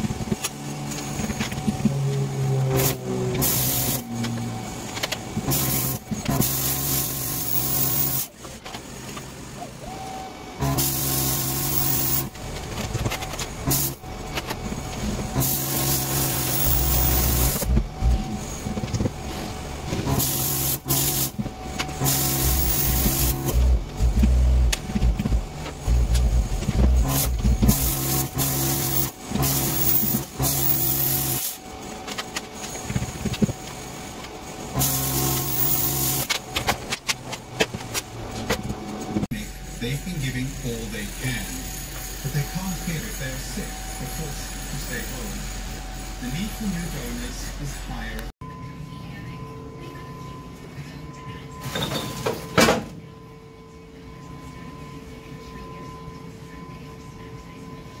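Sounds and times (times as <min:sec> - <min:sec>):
steady low hum: 0:00.0 - 0:51.6
equipment droning: 0:00.0 - 0:56.6
plasma cutter hissing: 0:02.7 - 0:04.2, 0:05.5 - 0:08.5, 0:09.9 - 0:12.3, 0:13.6 - 0:14.0, 0:15.3 - 0:18.8, 0:20.1 - 0:31.6, 0:34.6 - 0:36.3.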